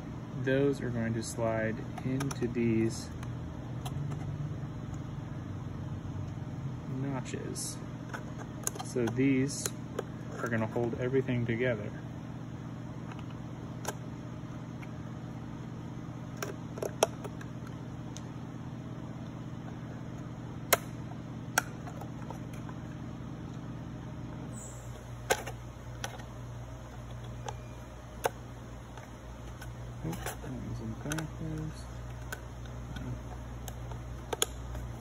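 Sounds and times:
low hum: 0.0 - 35.0.

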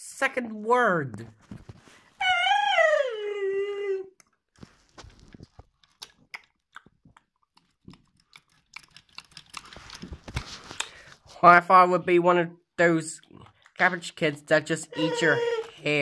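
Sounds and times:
small clicks and crunches: 4.2 - 11.3.

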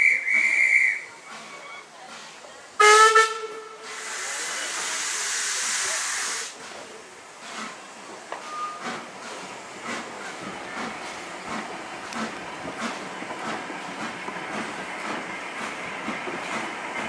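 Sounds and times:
steam hissing: 3.8 - 17.0.

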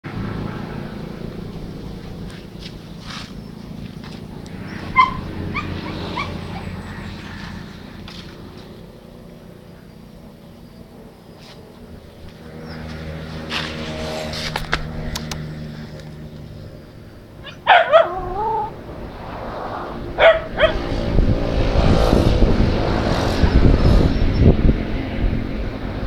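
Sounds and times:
rush of wind or passing vehicle: 0.0 - 26.0
dog barking: 4.9 - 6.6, 17.4 - 18.7, 20.2 - 20.9
dog whining: 4.9 - 6.6, 17.4 - 18.8, 20.2 - 20.8.

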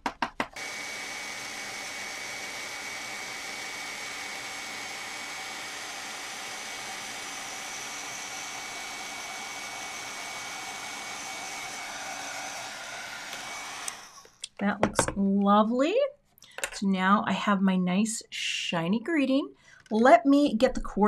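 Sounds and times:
heat tool blowing with high whine: 0.6 - 14.4.

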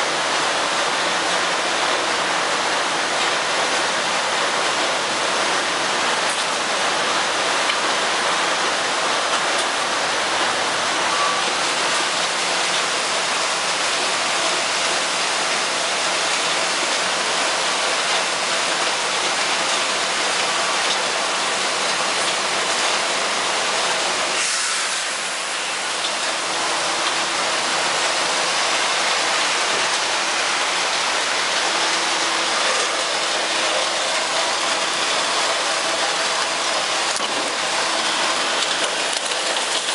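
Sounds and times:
wood chips pouring: 11.6 - 39.9.

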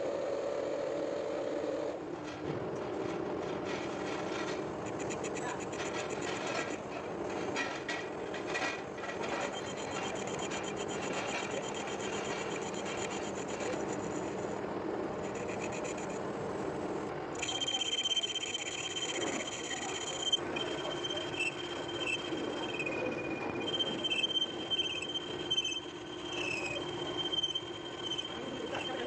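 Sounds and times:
high-pitched tool whine: 8.6 - 16.4, 17.0 - 29.0
metal lathe cutting: 8.7 - 29.0.

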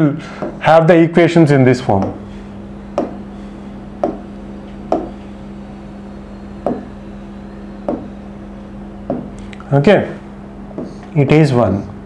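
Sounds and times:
low electrical hum: 0.0 - 12.0
hand tapping a screen: 0.4 - 0.6, 2.9 - 3.2, 4.0 - 4.3, 4.9 - 5.2, 6.6 - 6.9, 7.9 - 8.1.

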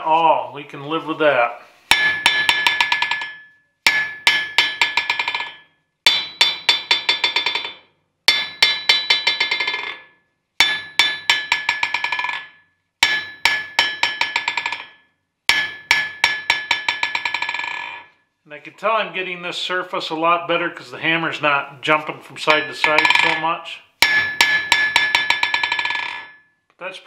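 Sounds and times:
hammer bouncing on anvil: 1.9 - 18.1, 22.4 - 26.6.

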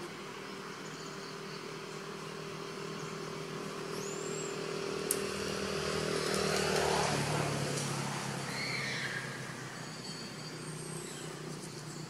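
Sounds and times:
vehicle engine hum: 0.0 - 12.0
high rising whistle: 8.4 - 11.5.

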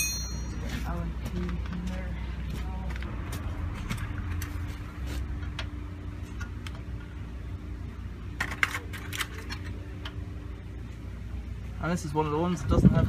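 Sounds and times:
metallic clinks of tools: 0.0 - 0.7
steady low hum: 0.0 - 13.0.

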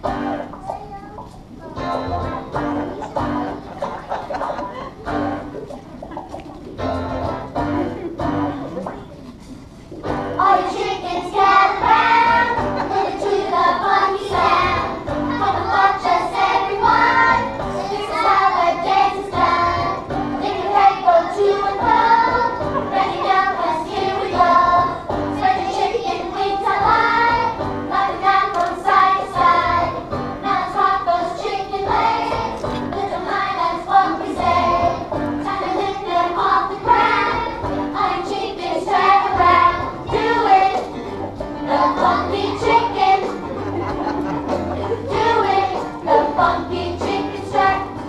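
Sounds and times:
musical accompaniment: 0.0 - 48.0
children singing together: 10.0 - 48.0.

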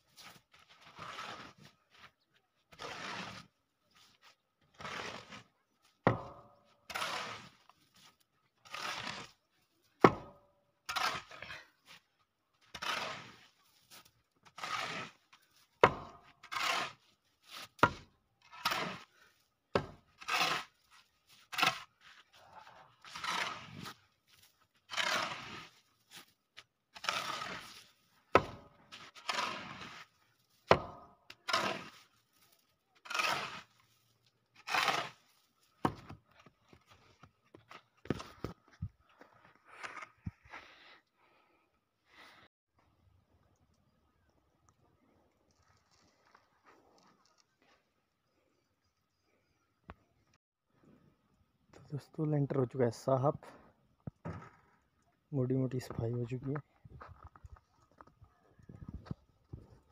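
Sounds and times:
shovel scraping snow on concrete: 0.0 - 6.0, 6.6 - 10.0, 10.8 - 41.1.

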